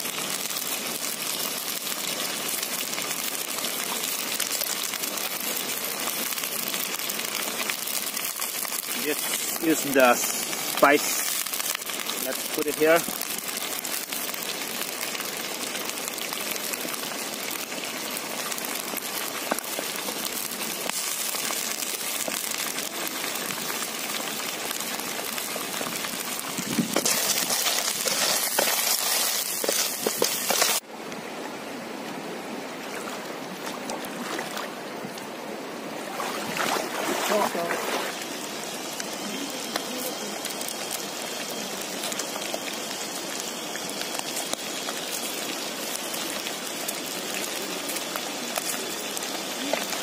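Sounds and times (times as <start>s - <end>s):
snails sizzling in a pan: 0.0s - 30.9s, 37.6s - 50.0s
shallow river rushing: 27.0s - 38.3s.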